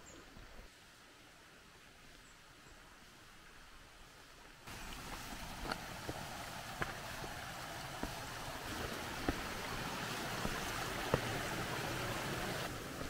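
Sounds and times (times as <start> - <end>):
stream trickling over rocks: 0.0 - 13.0
footsteps on stones: 4.9 - 12.1.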